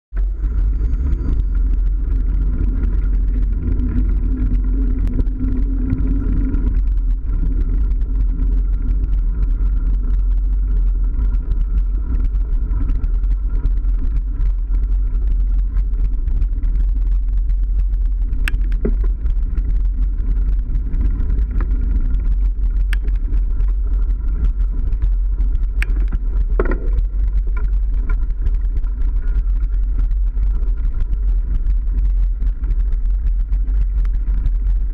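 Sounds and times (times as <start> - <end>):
wind rumble on microphone: 0.0 - 34.9
bike knocks and clicks: 18.3 - 19.2, 25.7 - 28.3.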